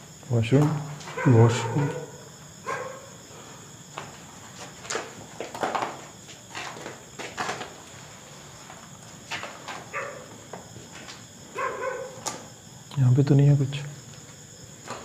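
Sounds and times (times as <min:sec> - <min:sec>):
crickets chirping: 0:00.0 - 0:15.0
footsteps and scuffs: 0:03.8 - 0:11.4.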